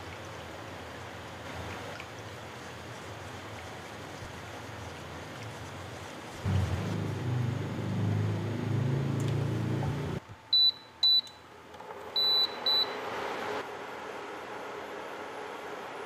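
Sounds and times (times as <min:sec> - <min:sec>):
whisk sloshing liquid in pot: 0:00.1 - 0:06.4
cooktop control panel beeping: 0:10.5 - 0:11.4, 0:12.2 - 0:13.0.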